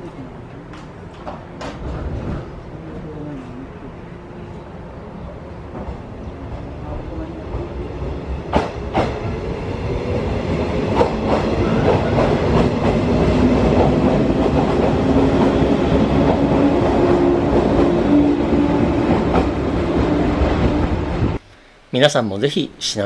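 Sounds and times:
wheels clacking over rail joints: 8.5 - 9.4.

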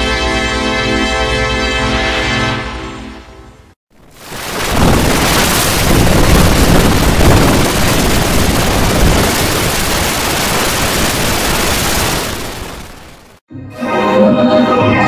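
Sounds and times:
harsh static noise: 3.9 - 13.4.

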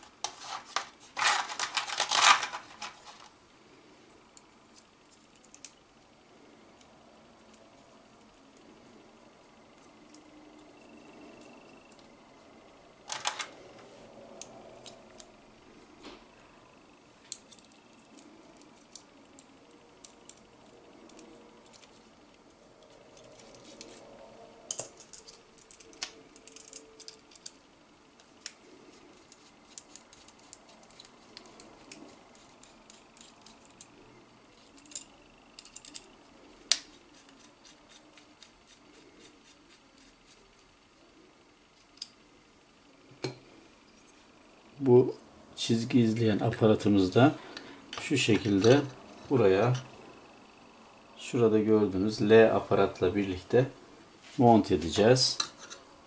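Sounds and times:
small screws clicking and rattling: 17.2 - 22.1, 24.6 - 27.6, 29.2 - 34.0, 34.6 - 38.6.

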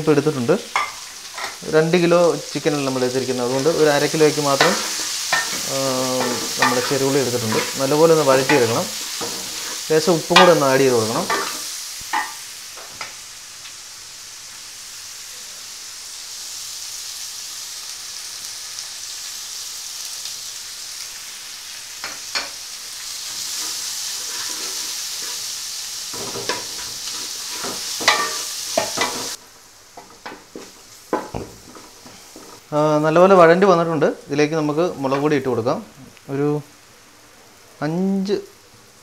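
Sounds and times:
aromatics sizzling in oil: 0.0 - 39.0
wooden spatula scraping pan: 3.5 - 10.5, 23.4 - 25.5, 26.1 - 29.4, 30.0 - 32.6.

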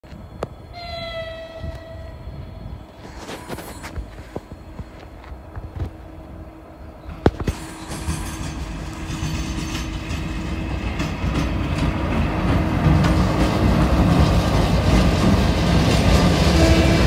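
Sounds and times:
freight train passing: 0.0 - 17.0
wheels clicking over rail joints: 7.0 - 17.0.

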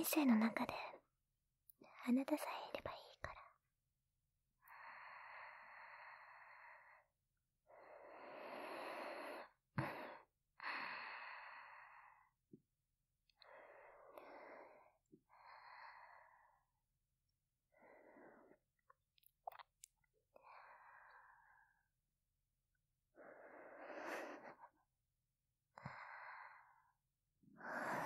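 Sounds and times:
woman breathing softly: 4.6 - 7.1, 7.7 - 12.4, 13.4 - 16.7, 20.4 - 21.8, 23.2 - 24.8, 25.8 - 27.0, 27.6 - 28.0.

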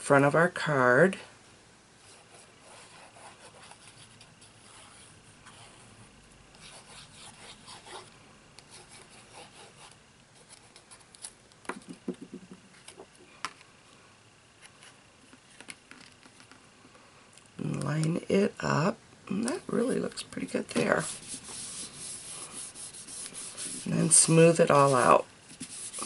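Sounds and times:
sponge rubbing on paper: 20.9 - 26.0.

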